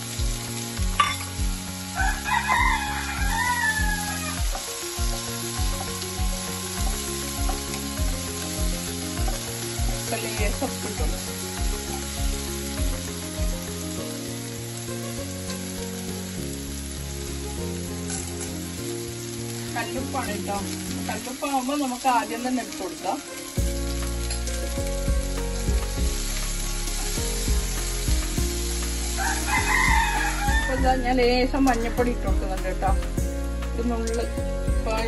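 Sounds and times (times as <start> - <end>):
background music with bass beat: 0.0 - 14.4, 23.6 - 35.0
garlic sizzling in oil: 0.0 - 35.0.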